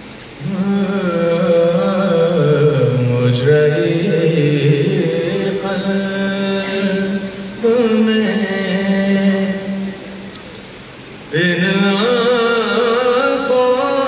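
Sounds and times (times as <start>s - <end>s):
male voices chanting: 0.4s - 10.0s.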